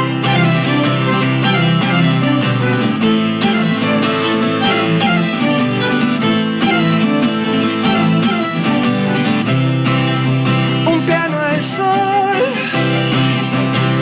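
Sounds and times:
bowed cello: 0.0 - 10.7
strummed acoustic guitar: 0.0 - 14.0.

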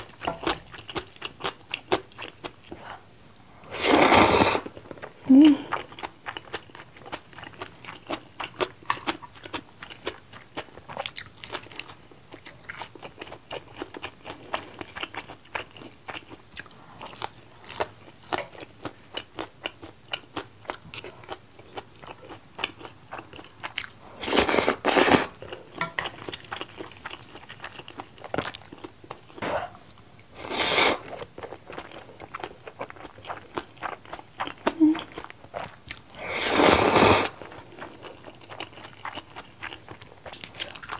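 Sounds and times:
chewing and crunching food: 0.0 - 3.0, 4.6 - 30.1, 31.0 - 40.9
slurping noodles: 3.7 - 4.7, 24.2 - 25.3, 30.4 - 31.1, 36.2 - 37.4.

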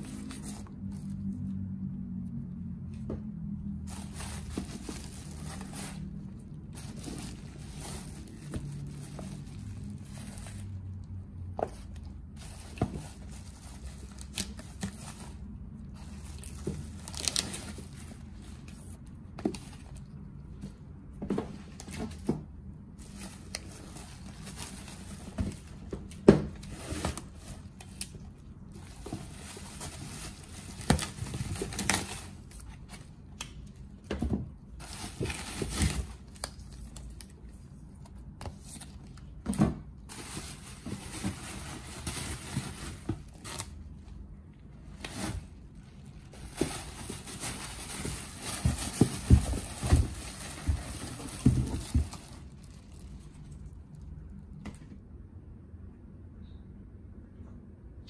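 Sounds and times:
plastic wrap crinkling: 3.8 - 11.1, 12.4 - 20.2, 45.0 - 54.0
books tapping and knocking: 25.2 - 27.4, 46.4 - 52.5.

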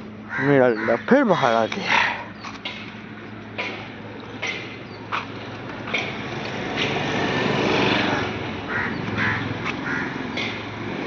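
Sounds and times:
harsh animal calls: 0.3 - 2.4, 8.0 - 10.2.

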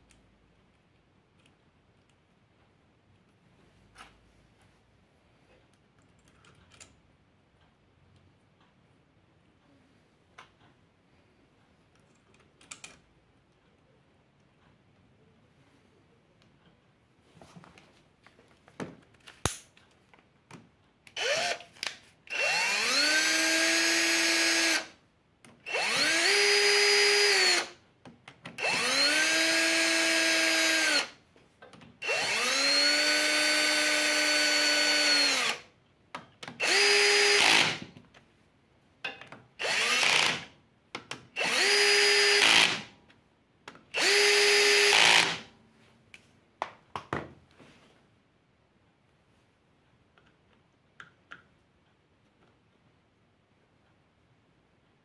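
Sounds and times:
cordless drill whining: 21.2 - 21.7, 22.3 - 24.9, 25.6 - 27.8, 28.6 - 31.1, 32.0 - 35.6, 36.6 - 37.8, 39.6 - 40.5, 41.4 - 42.9, 44.0 - 45.5.

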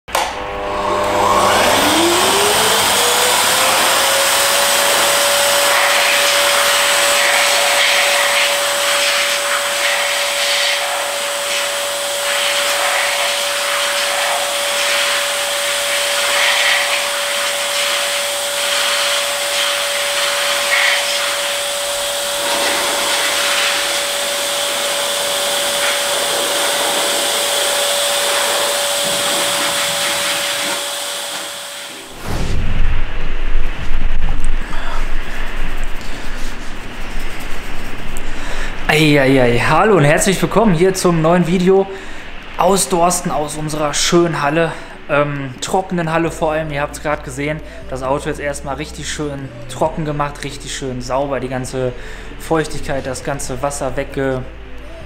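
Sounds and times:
air blower whining: 0.0 - 55.0
rush of air: 31.8 - 38.9.

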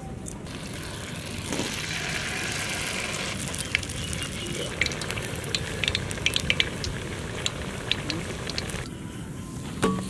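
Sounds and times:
food sizzling in hot oil: 0.5 - 8.9
oil clicks and pops: 3.4 - 8.9.

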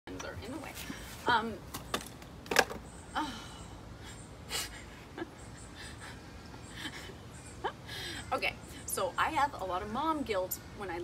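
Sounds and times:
woman laughing breathily: 3.2 - 8.3.

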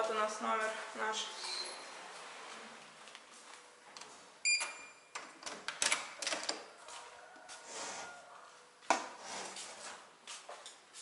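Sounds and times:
door lock beep: 4.4 - 5.2.

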